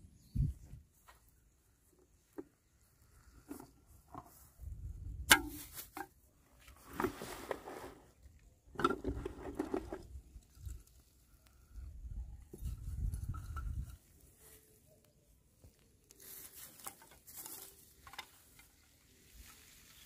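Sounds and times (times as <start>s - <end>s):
bamboo tubes knocking and rustling: 1.9s - 11.5s, 12.4s - 14.6s, 15.6s - 20.0s
hollow clacks of bamboo tubes: 5.3s - 6.2s, 16.7s - 18.9s.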